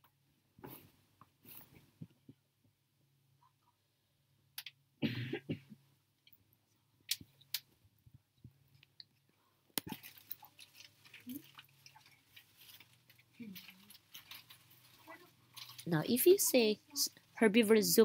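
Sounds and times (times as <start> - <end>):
person coughing: 5.0 - 5.8.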